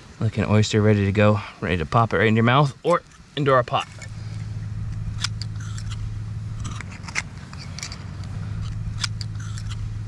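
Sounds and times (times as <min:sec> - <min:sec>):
steady low hum: 0:00.0 - 0:10.0
knife scraping oyster shells: 0:06.6 - 0:09.8.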